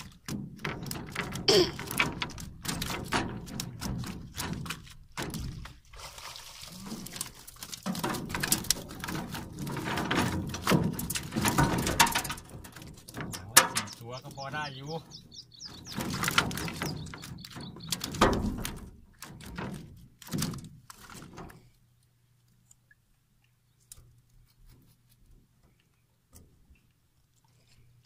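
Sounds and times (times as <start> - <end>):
water splashing and pouring: 0.0 - 14.6.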